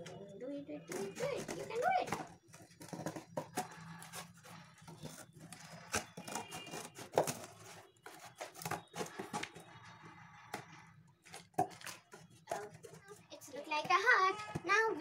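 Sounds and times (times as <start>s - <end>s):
scissors cutting cardboard: 0.9s - 13.2s.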